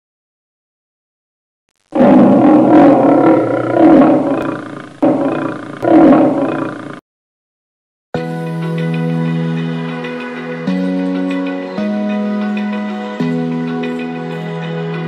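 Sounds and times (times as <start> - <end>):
lion roaring: 2.0 - 7.0.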